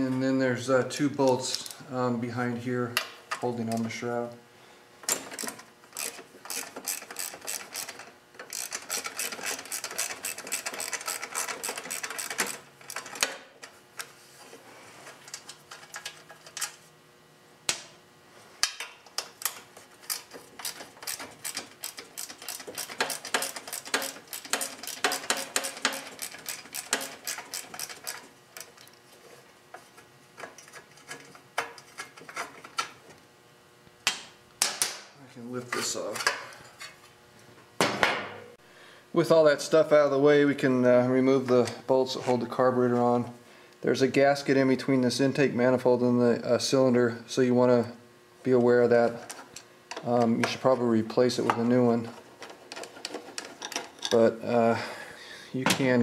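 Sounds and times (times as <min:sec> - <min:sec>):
ratchet wrench clicking: 0:05.3 - 0:13.0, 0:19.4 - 0:28.2.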